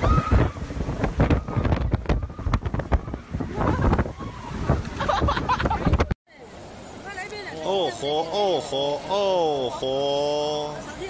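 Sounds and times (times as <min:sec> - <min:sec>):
storm wind buffeting microphone: 0:00.0 - 0:06.2.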